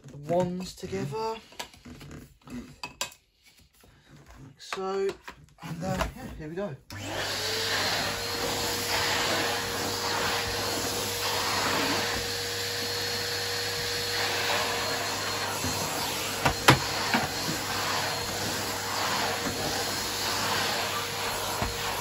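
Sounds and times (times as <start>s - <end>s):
vacuum cleaner running on carpet: 6.9s - 22.0s.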